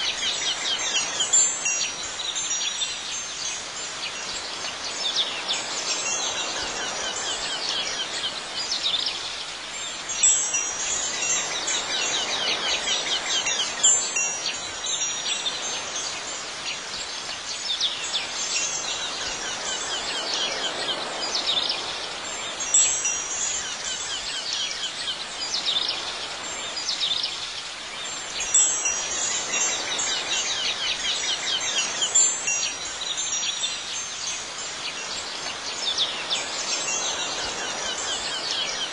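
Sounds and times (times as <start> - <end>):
wind chimes ringing: 0.0 - 9.2, 9.8 - 27.1, 28.1 - 38.9
outdoor background hiss: 0.0 - 38.9.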